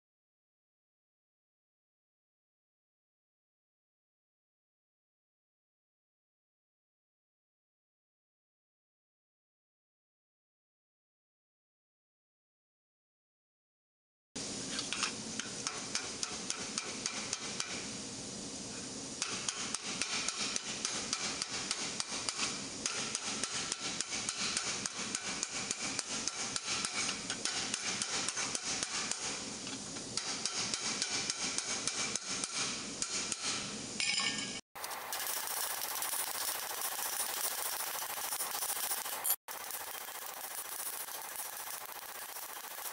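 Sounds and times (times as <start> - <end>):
steady hiss: 14.4 - 34.0, 34.8 - 42.9
hammer striking hot steel: 14.8 - 18.0, 19.2 - 35.0.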